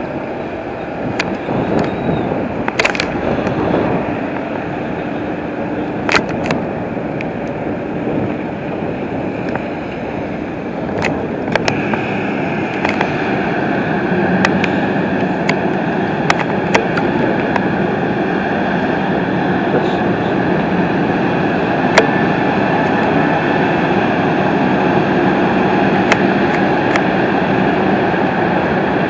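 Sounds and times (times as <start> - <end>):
boat engine and wake rushing: 0.0 - 29.0
wind: 0.0 - 29.0
sharp clicks and knocks: 2.6 - 3.6, 6.0 - 6.6, 12.7 - 13.2, 15.4 - 17.7.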